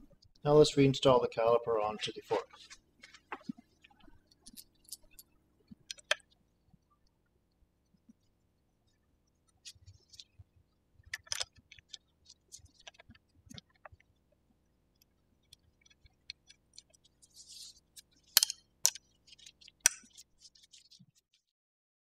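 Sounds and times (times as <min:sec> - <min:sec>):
scratchy rustle: 0:16.7 - 0:18.3, 0:19.2 - 0:21.5.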